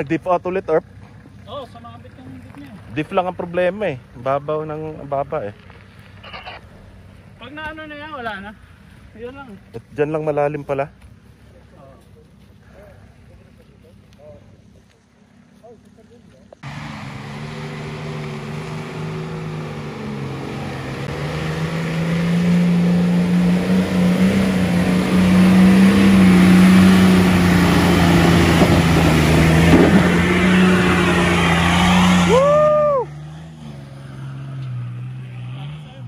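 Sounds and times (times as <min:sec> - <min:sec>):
engine revving under load: 0:16.6 - 0:36.0.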